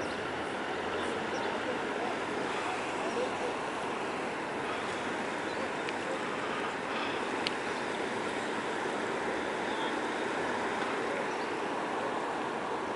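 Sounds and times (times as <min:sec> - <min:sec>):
small waves lapping: 0:00.0 - 0:12.9
faint clicks: 0:07.0 - 0:07.9.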